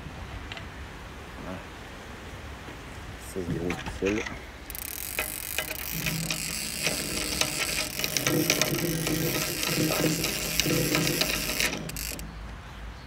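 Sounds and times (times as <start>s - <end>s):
low gear whirr: 3.9s - 12.6s
reel ratchet clicking rapidly: 4.1s - 12.4s.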